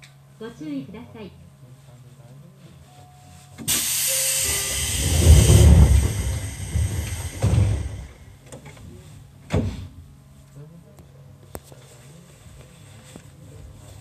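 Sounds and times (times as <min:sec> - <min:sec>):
train doors closing thump: 0:03.6 - 0:08.6, 0:09.5 - 0:09.9
pneumatic door air hiss: 0:03.7 - 0:08.4
low rumble: 0:04.4 - 0:08.4.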